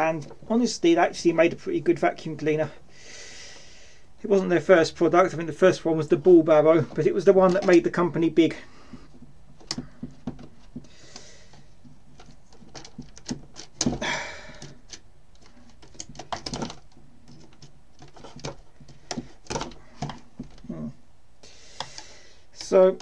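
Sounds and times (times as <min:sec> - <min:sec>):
hard plastic clicks and knocks: 0:08.9 - 0:20.7.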